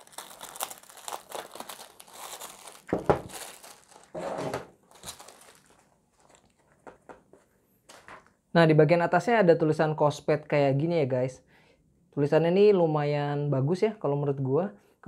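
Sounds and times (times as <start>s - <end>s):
plastic wrap crinkling: 0.0s - 7.0s.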